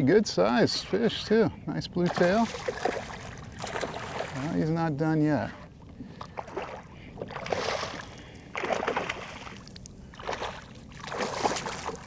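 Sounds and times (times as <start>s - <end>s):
quiet water sounds: 0.0s - 12.0s
fish splashing at the surface: 2.1s - 4.5s, 6.3s - 12.0s.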